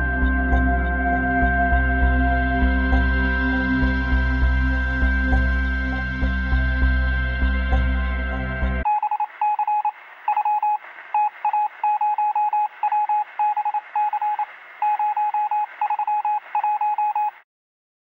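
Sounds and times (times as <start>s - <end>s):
morse code beeps: 8.9s - 17.4s
radio static hiss: 8.9s - 17.4s.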